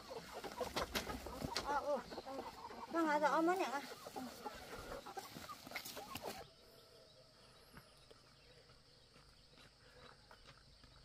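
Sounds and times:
chickens squawking: 0.0 - 7.2.

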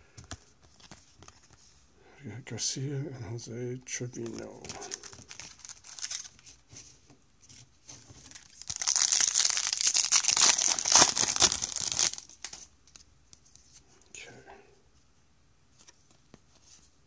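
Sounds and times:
foil wrapper tearing and crinkling: 4.7 - 6.4, 8.2 - 12.6.

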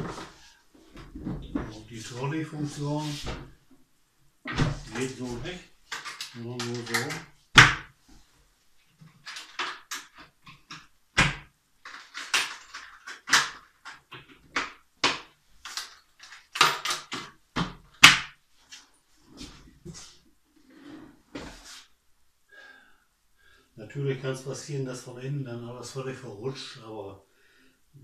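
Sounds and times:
wooden cabinet knocks and clunks: 1.0 - 1.8, 4.4 - 5.0.

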